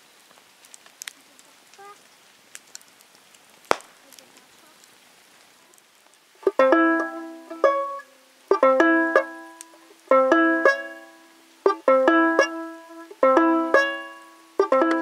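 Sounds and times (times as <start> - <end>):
banjo picking: 6.4 - 15.0.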